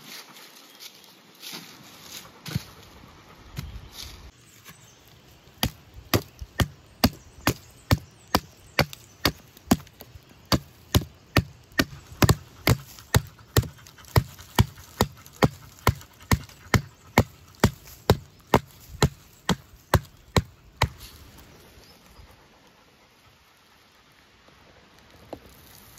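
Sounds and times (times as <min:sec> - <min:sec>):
machete chopping tree trunk: 0:05.6 - 0:21.0.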